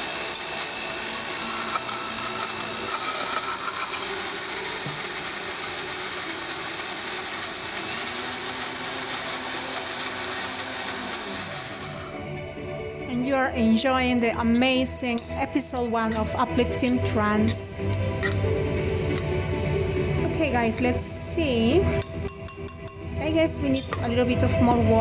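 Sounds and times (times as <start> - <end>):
blender grinding nuts: 0.0 - 12.2.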